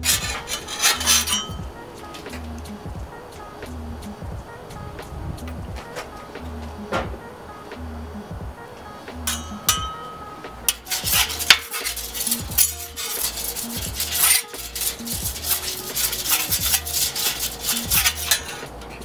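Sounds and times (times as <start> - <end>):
metal spatulas scraping griddle: 0.0 - 2.5, 9.3 - 19.0.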